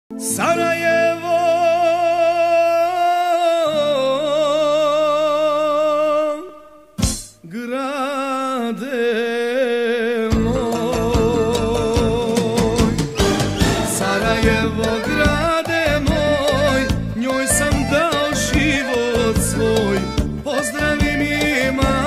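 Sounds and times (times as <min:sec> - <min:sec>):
solo voice singing with vibrato: 0:00.2 - 0:22.0
band playing with a beat: 0:10.3 - 0:22.0.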